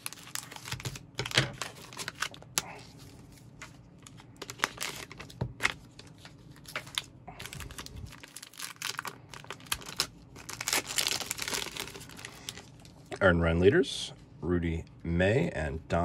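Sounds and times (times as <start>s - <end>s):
plastic sleeve crackling: 0.0s - 2.7s, 3.5s - 13.0s
foil pack crinkling and tearing: 0.0s - 13.0s.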